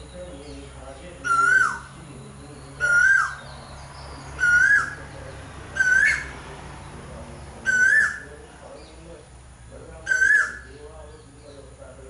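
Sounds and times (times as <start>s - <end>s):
bird whistled calls: 1.2s - 1.9s, 2.8s - 6.4s, 7.6s - 8.3s, 10.0s - 10.7s.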